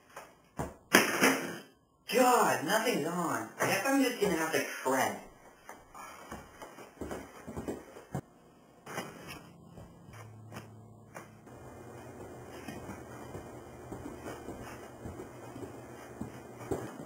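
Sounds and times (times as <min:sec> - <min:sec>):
footsteps on wooden floor: 0:05.5 - 0:08.3, 0:09.6 - 0:17.0
low steady hum: 0:08.2 - 0:17.0.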